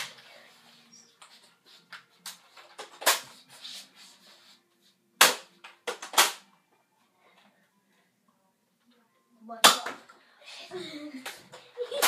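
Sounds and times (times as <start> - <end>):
foam dart blaster clacks and pops: 5.2 - 6.4.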